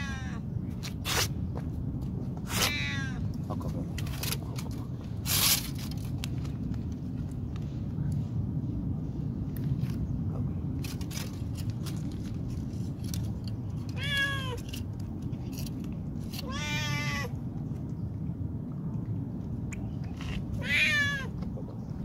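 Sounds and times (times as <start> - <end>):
cat meowing: 0.0 - 0.4, 2.5 - 3.2, 14.0 - 14.6, 16.4 - 17.4, 20.6 - 21.3.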